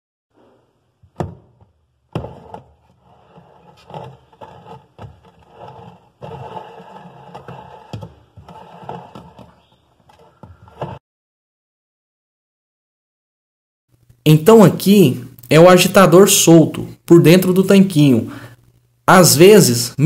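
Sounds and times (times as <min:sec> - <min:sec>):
plastic agitator scraping and rattling: 0:02.1 - 0:11.0.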